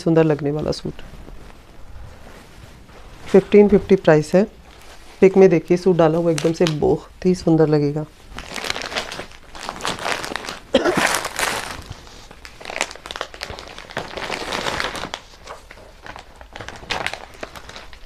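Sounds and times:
paper pages rustling: 8.4 - 18.0.

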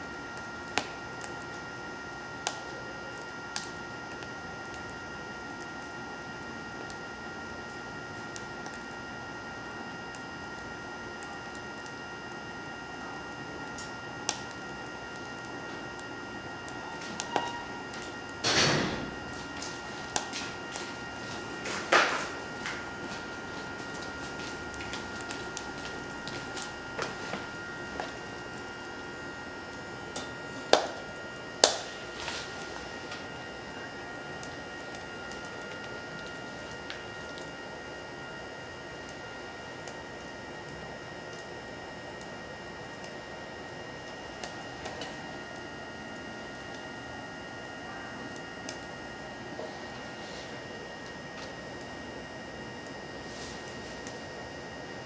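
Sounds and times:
burning wood popping: 0.0 - 55.0
electric fan whine: 0.0 - 55.0
wood fire crackling: 0.0 - 55.0
fire rushing: 13.4 - 37.8.

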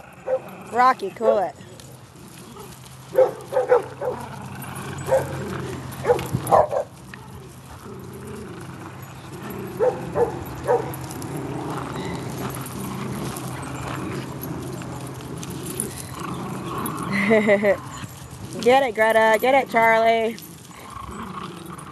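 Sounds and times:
small dogs barking: 0.0 - 0.5, 2.3 - 7.6, 9.0 - 18.4.

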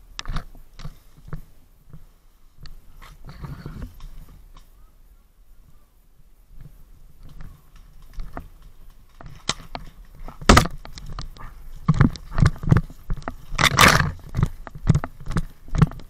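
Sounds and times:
rustling of gear or brush: 6.5 - 16.0
footsteps: 6.6 - 16.0.

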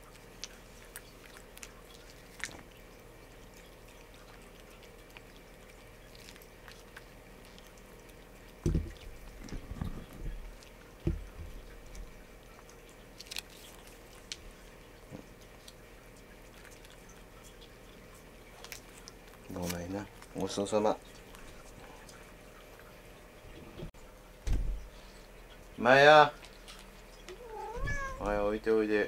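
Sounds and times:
cat chewing and licking: 0.0 - 23.4, 24.9 - 28.6
dull thumps: 8.6 - 10.4.

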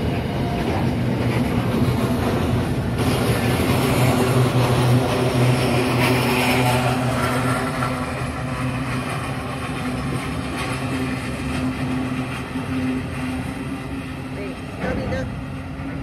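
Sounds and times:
train wheels rumbling on track: 0.0 - 16.0.

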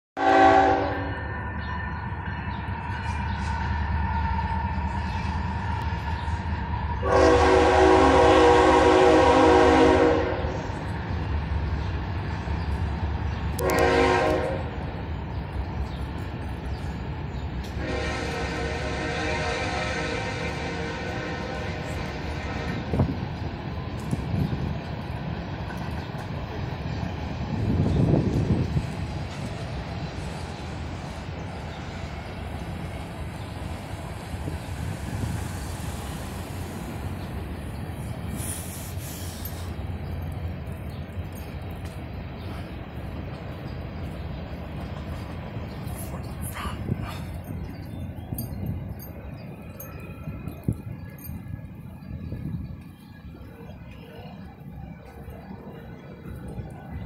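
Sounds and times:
locomotive air horn blast: 0.2 - 1.2, 7.0 - 10.6, 13.6 - 14.8, 17.8 - 23.1
freight train rumbling on rails: 0.2 - 57.0.

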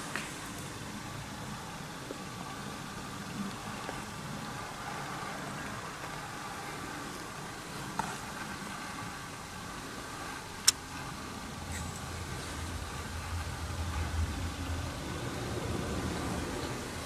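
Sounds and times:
low background rumble and hiss: 0.0 - 17.0.

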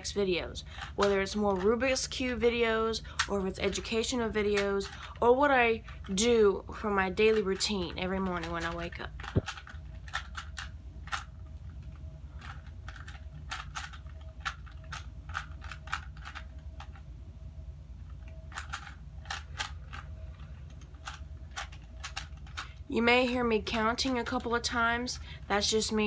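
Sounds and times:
puzzle cube layers clicking: 8.4 - 11.3, 20.7 - 22.7.

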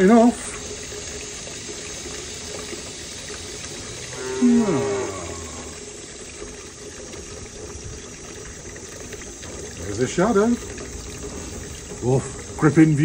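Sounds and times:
background hiss: 0.0 - 6.7
cow mooing: 4.0 - 5.9.

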